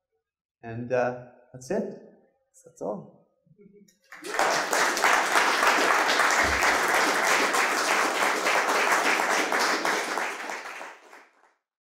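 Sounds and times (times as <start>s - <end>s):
audience applauding: 4.0s - 11.4s.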